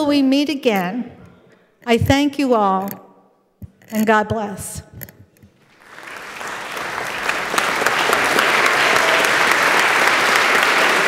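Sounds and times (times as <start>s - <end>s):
crowd applauding: 5.7s - 11.0s.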